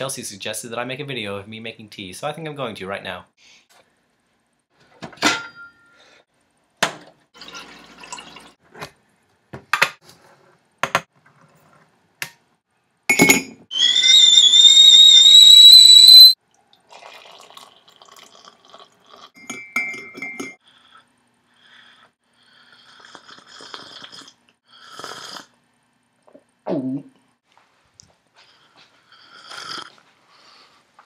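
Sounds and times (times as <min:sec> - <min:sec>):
kettle whistling: 0:13.7 - 0:16.4
spoon clinking against mug: 0:19.4 - 0:20.6.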